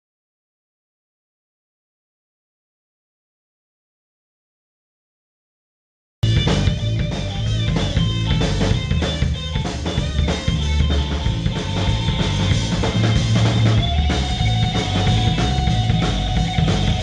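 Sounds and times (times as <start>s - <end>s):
band playing: 6.2s - 17.0s
bass drum and snare beating: 6.2s - 17.0s.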